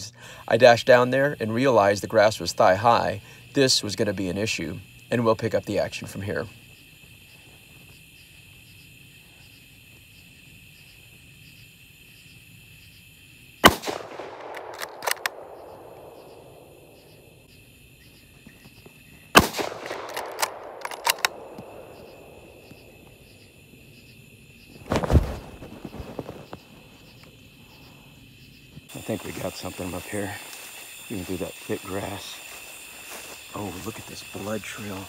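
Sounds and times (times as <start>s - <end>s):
insects chirping: 0.0s - 35.0s
sharp clicks: 13.6s - 16.4s, 19.4s - 22.2s
rifle shots with echo: 13.6s - 17.0s, 19.3s - 22.6s.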